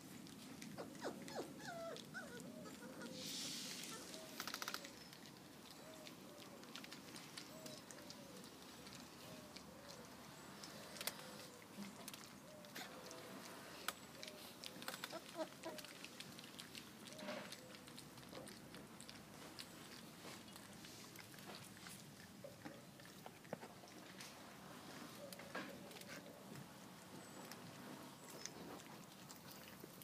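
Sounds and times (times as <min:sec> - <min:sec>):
puppies pattering paws: 0:00.0 - 0:03.2, 0:03.8 - 0:30.0
puppies lapping and chewing food: 0:00.0 - 0:30.0.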